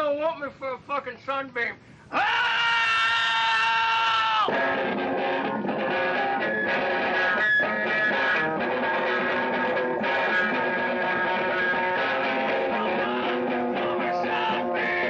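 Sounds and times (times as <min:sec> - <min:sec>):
plucked guitar: 0:04.5 - 0:15.0.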